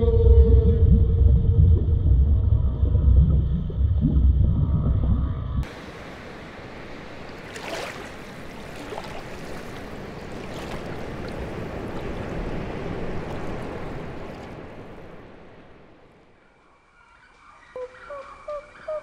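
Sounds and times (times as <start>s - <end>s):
sea water sloshing: 5.1s - 16.1s.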